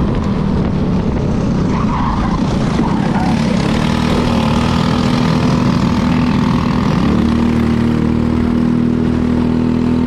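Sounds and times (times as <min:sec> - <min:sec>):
wind noise: 0:00.0 - 0:07.5
racing kart engine: 0:00.0 - 0:10.0.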